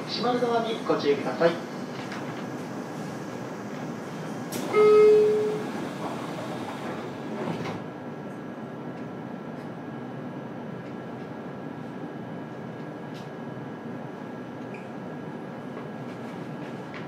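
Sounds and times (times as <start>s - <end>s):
train car hum: 0.0s - 17.0s
door warning chime: 4.6s - 5.7s.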